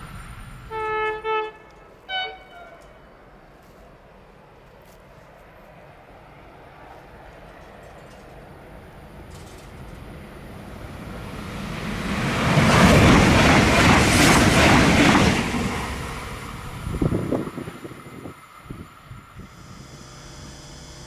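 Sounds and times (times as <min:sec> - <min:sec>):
train passing at speed: 0:00.0 - 0:19.6
wind buffeting microphone: 0:10.0 - 0:19.6.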